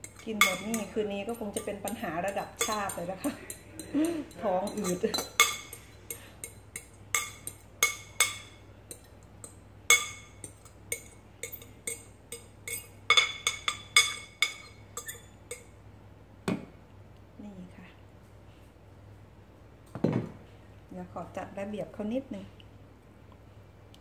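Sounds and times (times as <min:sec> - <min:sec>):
utensil clinking against glass bowl: 0:00.0 - 0:15.7.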